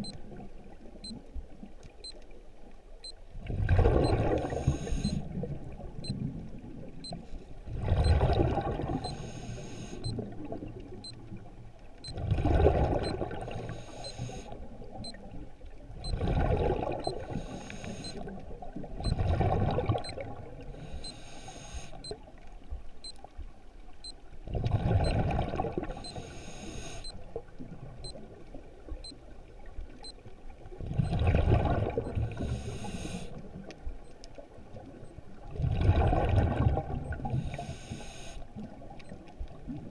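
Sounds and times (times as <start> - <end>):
exhaled bubbles gurgling underwater: 3.4 - 9.2, 10.1 - 13.8, 14.5 - 20.9, 24.4 - 26.0, 27.2 - 33.8, 34.4 - 39.9
regulator breath hiss: 4.5 - 5.2, 9.1 - 10.0, 13.6 - 14.5, 17.3 - 18.2, 20.8 - 22.0, 26.1 - 27.1, 32.4 - 33.4, 37.4 - 38.4.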